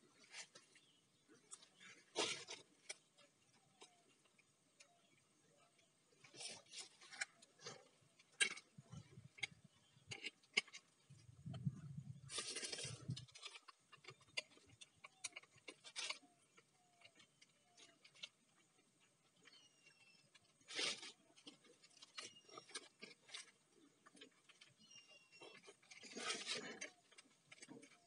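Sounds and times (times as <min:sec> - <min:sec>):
brief rustle: 0:12.3 - 0:14.5.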